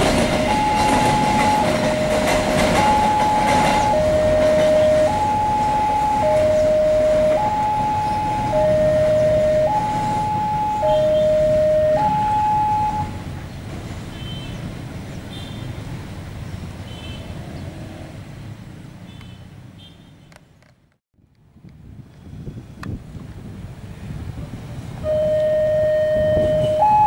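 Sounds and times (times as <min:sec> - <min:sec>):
two-tone crossing alarm siren: 0:00.0 - 0:13.3, 0:25.0 - 0:27.0
freight train rumbling past: 0:00.0 - 0:16.8, 0:23.4 - 0:27.0.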